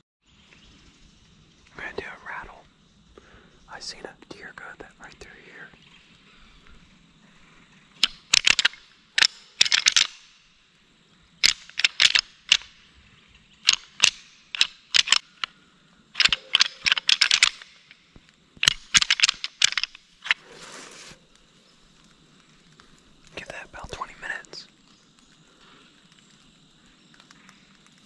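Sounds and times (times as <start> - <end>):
antlers clicking and clattering: 7.9 - 10.4, 11.4 - 23.4.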